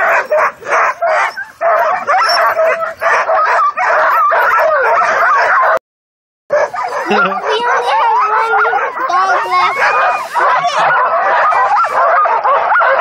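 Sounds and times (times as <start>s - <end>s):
sled dogs barking and yelping: 0.0s - 5.8s, 6.5s - 13.0s.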